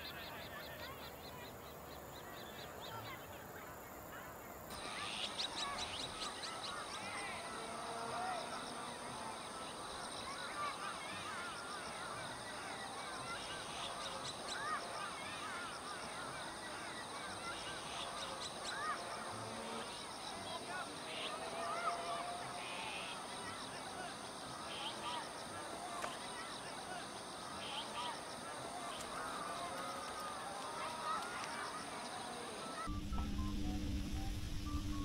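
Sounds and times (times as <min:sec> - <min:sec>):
birds chirping and chattering: 0:00.0 - 0:33.3
steady high-pitched tone: 0:32.9 - 0:35.0.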